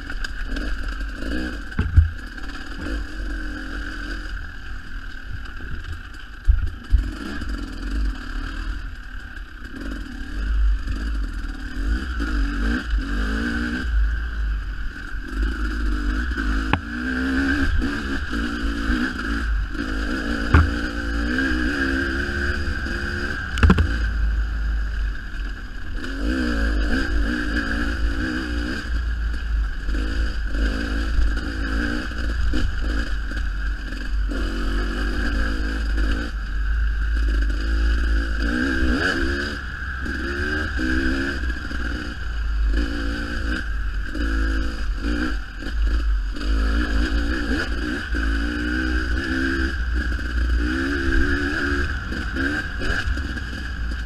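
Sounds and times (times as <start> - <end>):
dirt bike engine revving: 0.0 - 54.0
heavy low rumble: 1.7 - 2.4
sharp knocks: 1.8 - 2.2, 20.5 - 20.8, 23.6 - 24.0.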